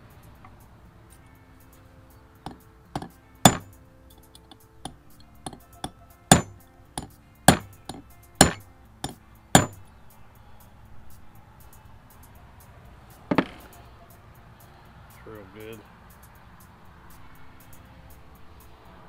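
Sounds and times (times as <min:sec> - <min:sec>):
hammer striking metal punch: 0:02.5 - 0:03.7, 0:04.3 - 0:09.8.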